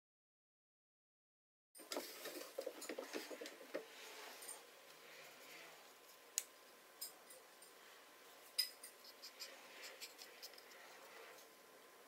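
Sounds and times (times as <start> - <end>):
cotton swab scraping metal: 8.9 - 11.4.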